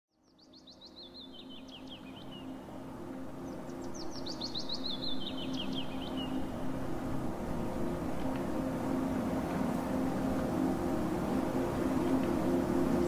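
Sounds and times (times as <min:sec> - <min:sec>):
songbird chirping: 0:00.2 - 0:06.5.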